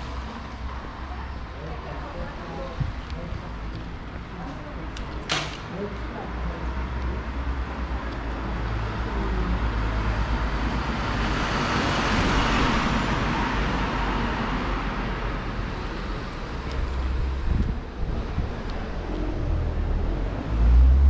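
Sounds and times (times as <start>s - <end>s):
vehicle passing by: 8.5s - 21.0s
steady low rumble: 14.4s - 20.7s.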